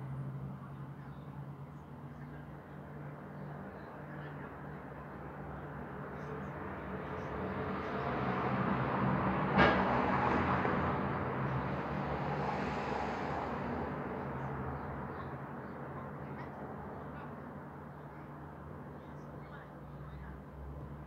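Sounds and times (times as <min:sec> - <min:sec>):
rushing noise: 0:11.7 - 0:14.3.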